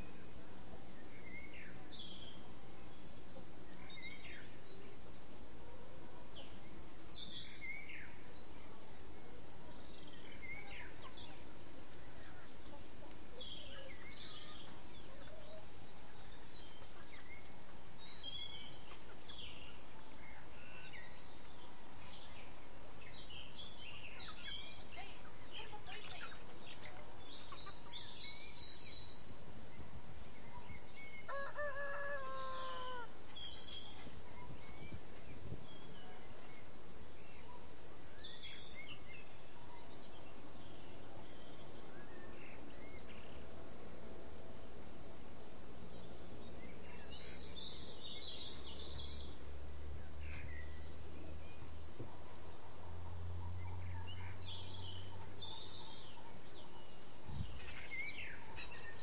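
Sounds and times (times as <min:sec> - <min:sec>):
outdoor background hiss: 0:00.0 - 0:59.0
small birds chirping: 0:00.0 - 0:59.0
rooster crowing: 0:31.3 - 0:33.1.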